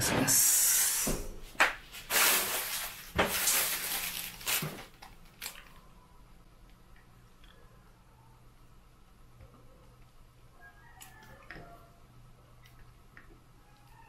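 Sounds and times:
rustling and scraping: 1.4 - 5.2.

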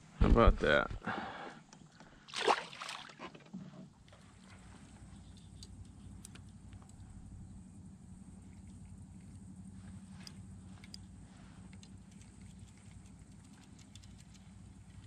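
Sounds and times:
fish splashing into water: 2.3 - 3.2
steady low hum: 3.9 - 15.0
faint ticks: 4.1 - 7.2, 8.3 - 15.0.

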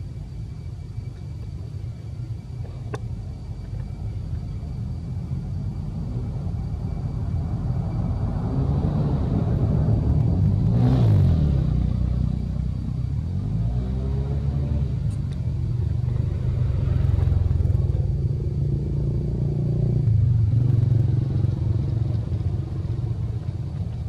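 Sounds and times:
steady low rumble: 0.0 - 24.0
vehicle engine passing: 7.7 - 12.8.

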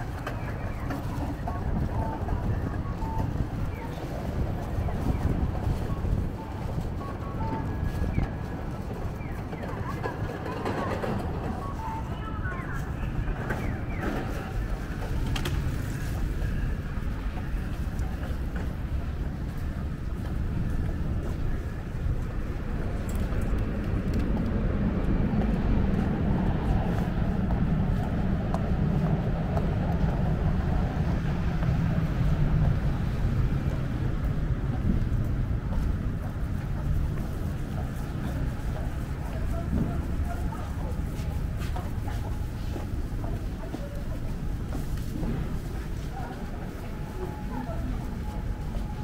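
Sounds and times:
low rumble of traffic: 0.0 - 49.0.

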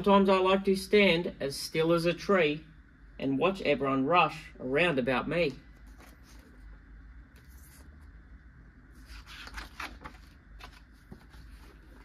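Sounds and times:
low steady hum: 0.0 - 12.0
book pages rustling: 5.8 - 6.8, 7.4 - 8.1, 8.9 - 12.0.

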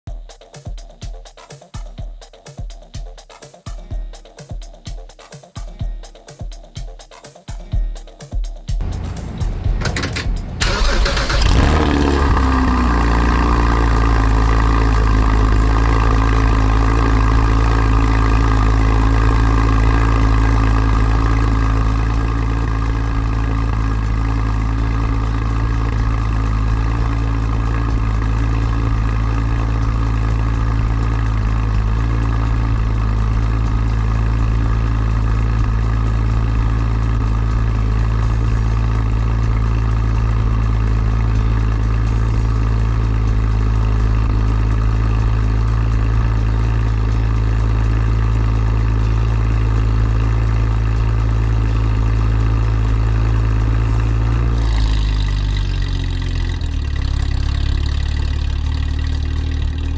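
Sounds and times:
sports car engine starting and idling: 8.8 - 59.9.

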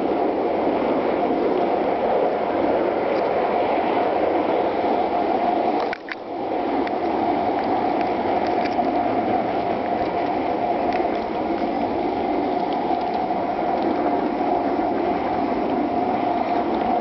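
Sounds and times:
faint clicks: 5.8 - 6.2.

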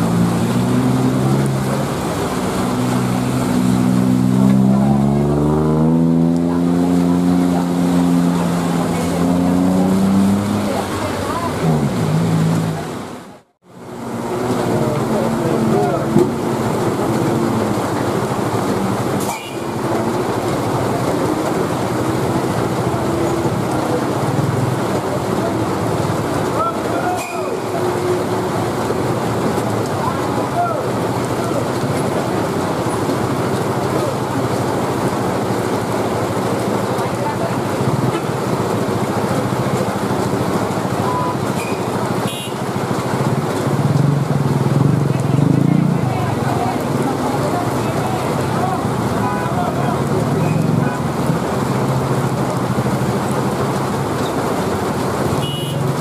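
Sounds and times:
car engine running hard: 0.0 - 56.0
heavy rain: 0.0 - 56.0.

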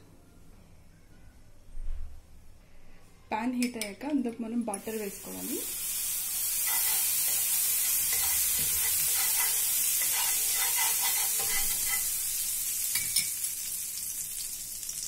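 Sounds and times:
butter sizzling in a frying pan: 4.8 - 15.0
spoon scraping a pan: 6.4 - 13.4.

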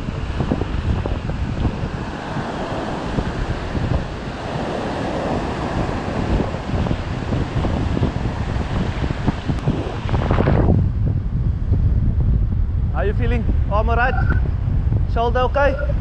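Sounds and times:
surf breaking on shore: 0.0 - 10.7
wind buffeting microphone: 0.0 - 16.0.

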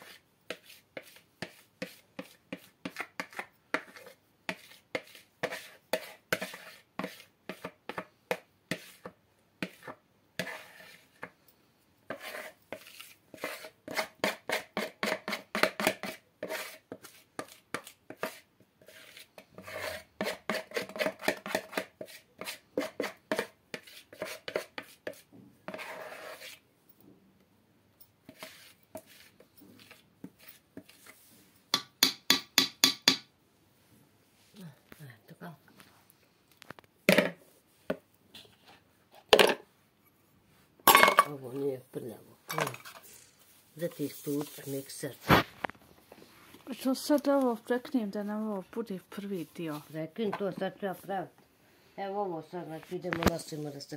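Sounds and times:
scraping and tapping plastic bowl: 0.5 - 11.4, 12.1 - 26.6.

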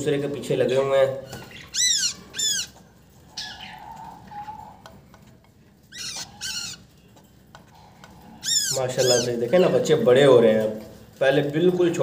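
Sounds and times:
nestling birds chirping: 0.8 - 10.3.

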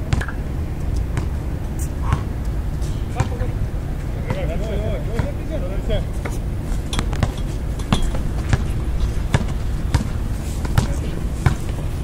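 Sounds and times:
basketball bouncing on concrete: 0.0 - 2.4, 3.2 - 3.4, 4.2 - 5.6, 7.0 - 11.8
steady low rumble: 0.0 - 12.0.

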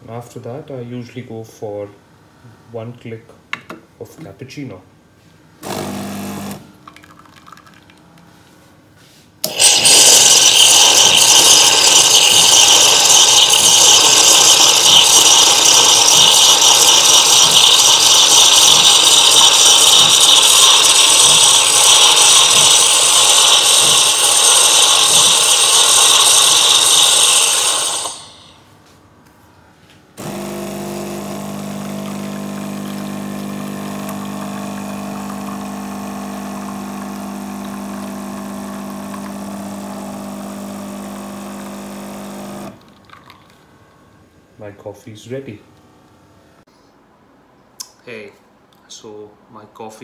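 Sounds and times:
espresso machine pump buzz: 5.6 - 6.6, 9.4 - 28.6, 30.2 - 42.8.

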